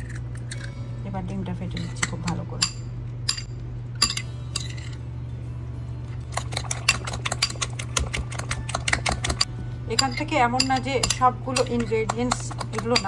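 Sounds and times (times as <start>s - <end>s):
spoon beating eggs in bowl: 6.3s - 13.0s.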